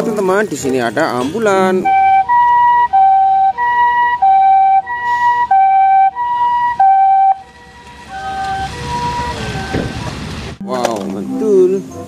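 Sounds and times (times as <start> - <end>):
ambulance two-tone siren: 1.8 - 10.6.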